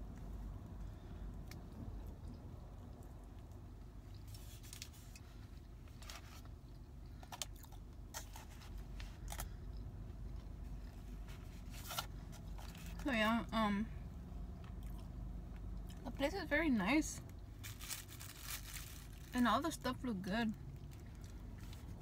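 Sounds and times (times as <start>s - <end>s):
low steady hum: 0.0s - 22.0s
person chewing crunchy food: 14.6s - 16.0s.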